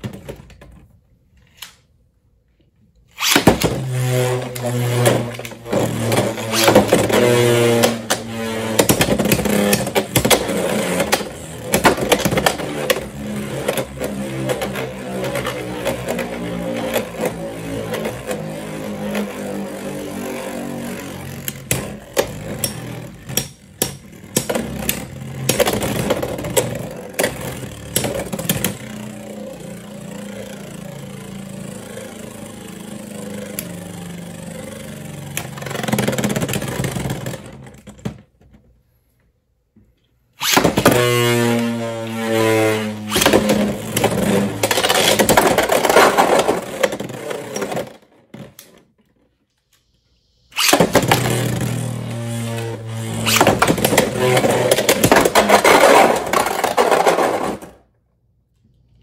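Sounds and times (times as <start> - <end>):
spinning tops whirring: 3.1 - 37.4, 49.7 - 57.6.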